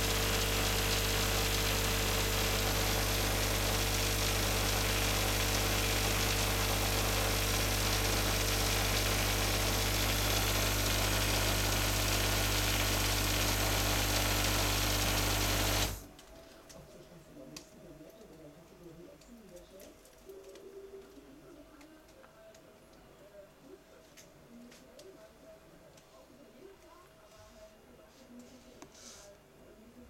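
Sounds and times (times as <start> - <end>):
pump humming: 0.0 - 16.0.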